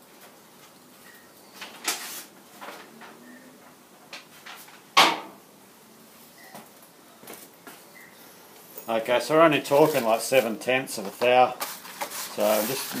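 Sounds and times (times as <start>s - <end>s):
scrape: 9.7s - 13.0s.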